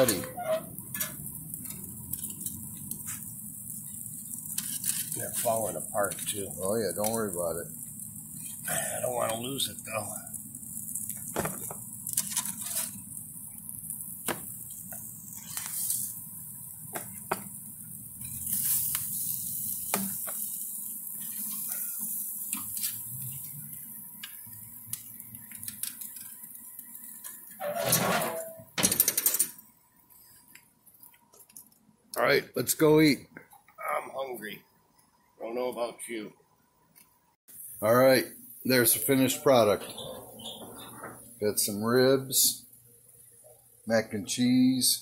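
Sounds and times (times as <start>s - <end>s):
steady hiss: 0.0s - 27.7s, 37.5s - 45.0s
metal tongs clinking on grill grates: 0.8s - 7.4s, 10.9s - 13.2s, 18.2s - 26.4s.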